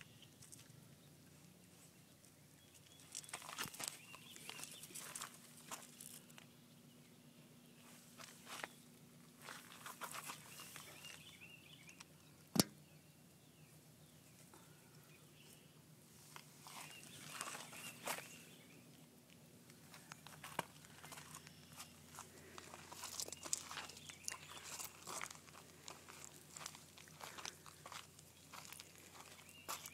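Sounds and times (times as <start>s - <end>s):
footsteps crunching: 2.8s - 6.4s, 7.8s - 8.8s, 9.4s - 11.3s, 16.3s - 18.6s, 19.8s - 29.9s.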